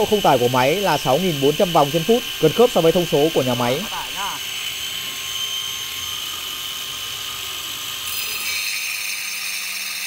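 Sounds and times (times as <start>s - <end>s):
wall chaser whining: 0.0s - 4.5s
blades cutting into brick: 8.0s - 10.0s.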